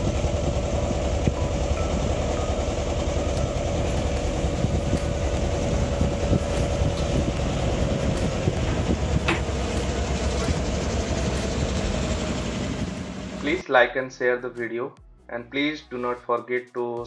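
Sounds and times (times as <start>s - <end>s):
motor boat engine running: 0.0s - 13.6s.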